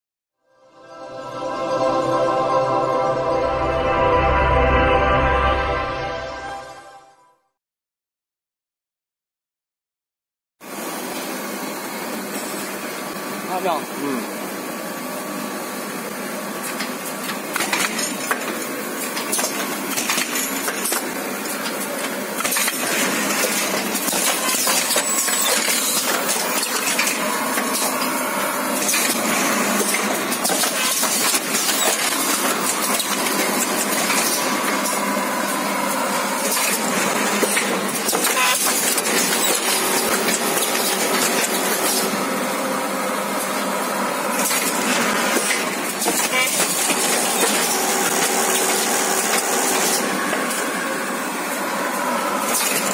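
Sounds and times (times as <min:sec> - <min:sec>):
machine clattering with sharp clicks: 0:16.6 - 0:28.2, 0:28.8 - 0:35.0, 0:36.4 - 0:42.2, 0:44.4 - 0:50.6, 0:52.4 - 0:52.9.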